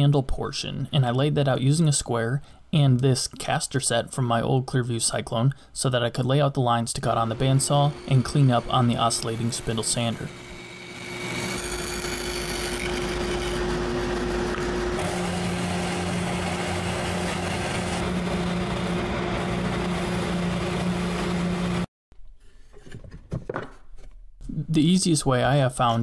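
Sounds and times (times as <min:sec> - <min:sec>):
bandsaw cutting plywood: 0:07.1 - 0:21.9
spindle sander running: 0:07.2 - 0:21.9.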